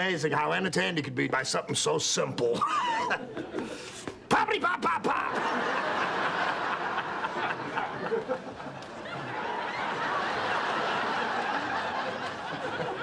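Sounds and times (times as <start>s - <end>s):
studio audience laughing: 2.6s - 4.0s, 4.9s - 13.0s.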